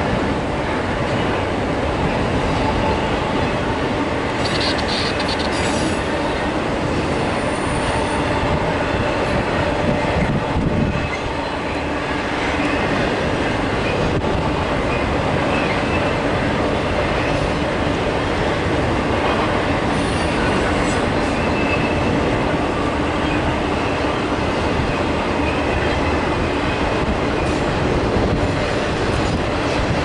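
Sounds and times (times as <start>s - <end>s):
train wheels rumbling on rails: 0.0s - 30.0s
high wheel squeal: 4.4s - 6.0s.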